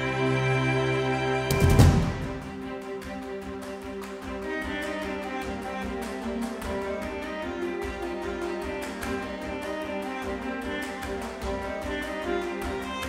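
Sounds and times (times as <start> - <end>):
background music with held tones: 0.0 - 13.0.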